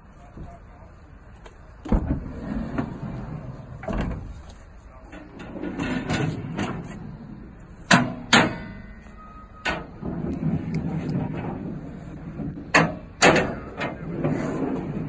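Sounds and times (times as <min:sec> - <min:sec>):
metal drawers rolling on runners: 0:01.8 - 0:04.4, 0:05.1 - 0:15.0
sharp metallic clunks: 0:07.8 - 0:10.0, 0:12.4 - 0:14.0.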